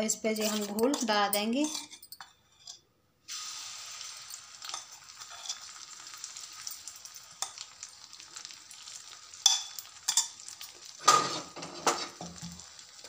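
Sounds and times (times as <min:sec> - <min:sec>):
steel spoon clinking and scraping: 0:00.0 - 0:02.8, 0:04.2 - 0:05.7, 0:09.4 - 0:10.8
batter sizzling in hot oil: 0:03.2 - 0:13.0.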